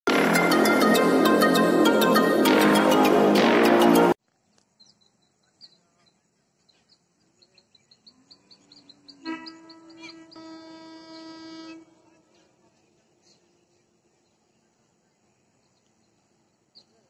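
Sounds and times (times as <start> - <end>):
intro music: 0.0 - 4.2
faint bird chirps: 4.2 - 17.0
distant locomotive horn: 8.9 - 12.3.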